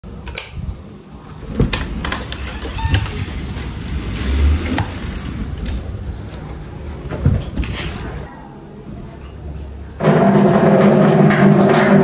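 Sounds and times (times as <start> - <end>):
vehicle rumble: 2.2 - 8.3
knocks and clatter: 10.0 - 12.0.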